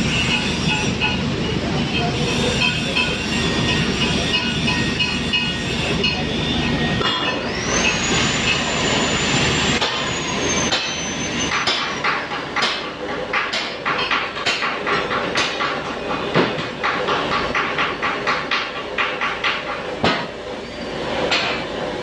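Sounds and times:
high whine: 0:00.0 - 0:11.9.

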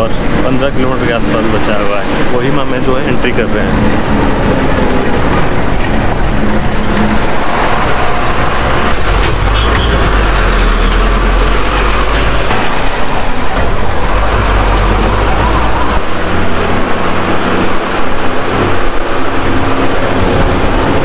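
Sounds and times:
bus engine and road noise: 0:00.0 - 0:21.0.

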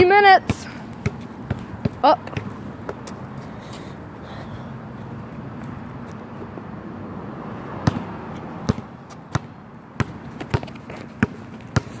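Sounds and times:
footsteps on concrete: 0:00.5 - 0:04.0, 0:10.1 - 0:12.0.

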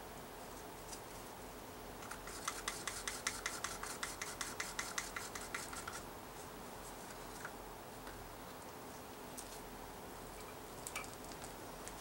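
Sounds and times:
stirring stick tapping cup: 0:02.3 - 0:06.0.

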